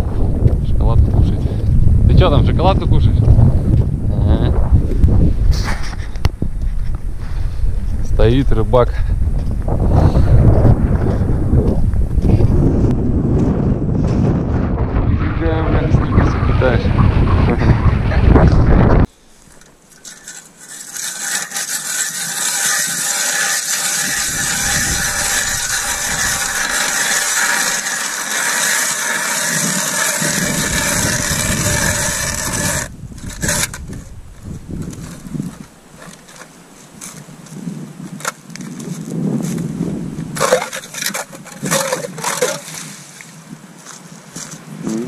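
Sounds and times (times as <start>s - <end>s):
ice auger drilling ice: 19.6s - 34.0s, 40.4s - 43.1s.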